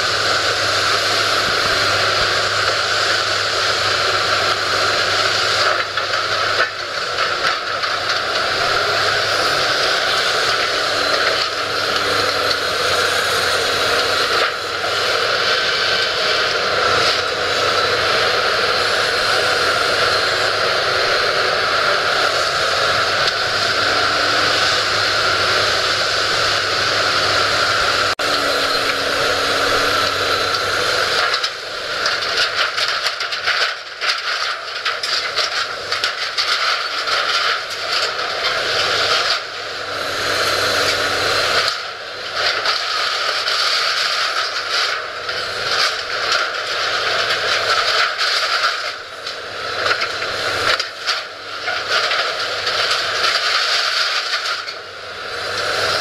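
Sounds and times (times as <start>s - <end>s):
excavator engine drone: 0.0s - 56.0s
crunching and clattering metal: 2.2s - 18.5s, 28.1s - 39.8s, 40.8s - 54.9s.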